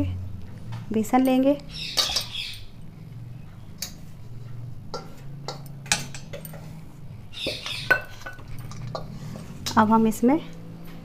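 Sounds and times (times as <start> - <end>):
low steady hum: 0.0 - 11.0
small bowl clicking and tapping: 4.9 - 6.8.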